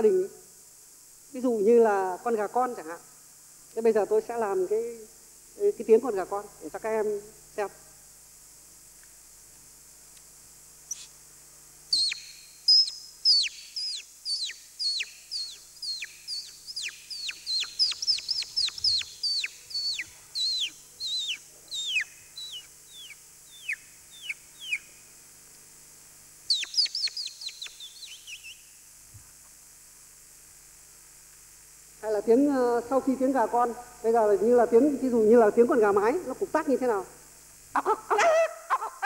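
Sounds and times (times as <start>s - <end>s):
person imitating chick peeps: 12.0s - 24.8s, 37.8s - 39.0s.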